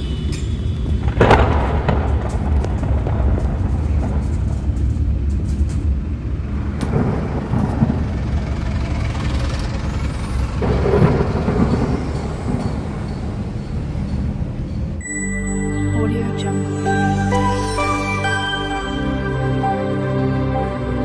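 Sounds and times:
car engine and road noise: 0:00.0 - 0:16.2
music: 0:15.0 - 0:21.0.

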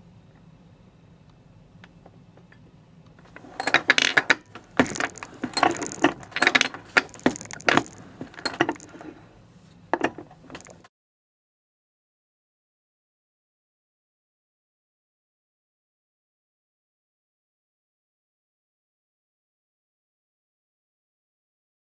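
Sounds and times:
reloading press metallic clicks: 0:03.6 - 0:09.0.

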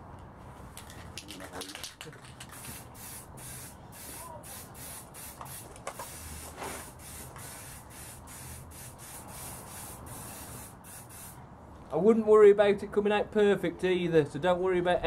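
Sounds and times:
spray paint can hissing: 0:02.4 - 0:11.4.

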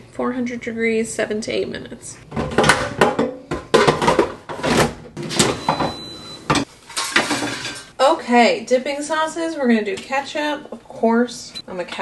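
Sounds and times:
dishes knocking and clicking: 0:02.4 - 0:07.8.

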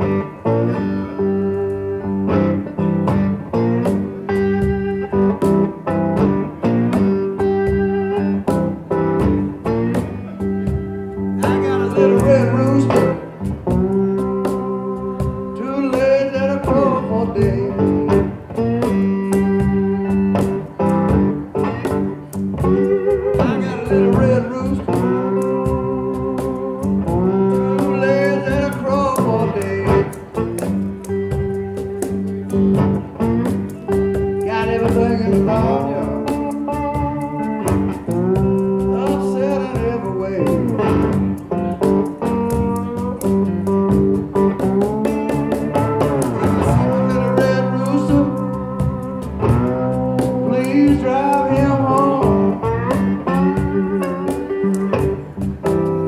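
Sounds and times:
cajon beat: 0:00.0 - 0:56.0
slide electric guitar blues riff: 0:00.0 - 0:56.0
person singing: 0:11.2 - 0:20.2, 0:22.7 - 0:32.6, 0:33.9 - 0:37.1, 0:38.1 - 0:41.2, 0:44.4 - 0:55.3.

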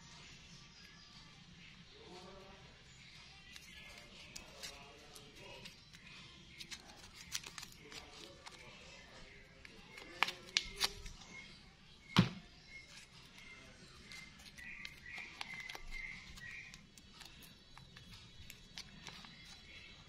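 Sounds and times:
faint background music: 0:00.0 - 0:20.0
cardboard and paper wrapper crinkling: 0:03.6 - 0:11.2, 0:13.0 - 0:19.9
sharp thump: 0:12.2 - 0:12.4.

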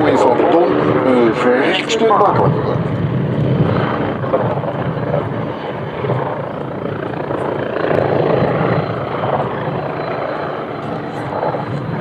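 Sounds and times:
helicopter rotor and engines: 0:00.0 - 0:12.0.

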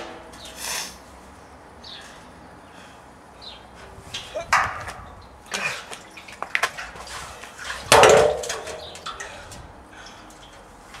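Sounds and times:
metal keg clanging on ground: 0:06.6 - 0:09.5
keg knocking and bumping: 0:07.9 - 0:09.2.

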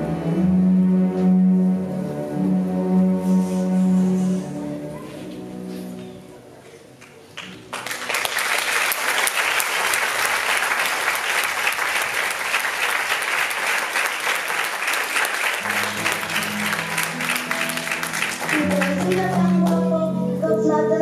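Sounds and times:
music: 0:00.0 - 0:07.7, 0:14.6 - 0:21.0
audience applauding: 0:07.0 - 0:19.9.

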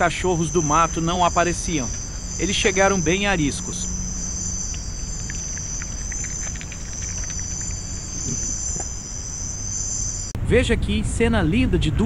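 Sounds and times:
night insects trilling: 0:00.0 - 0:10.4
faint clicks: 0:04.6 - 0:09.0.

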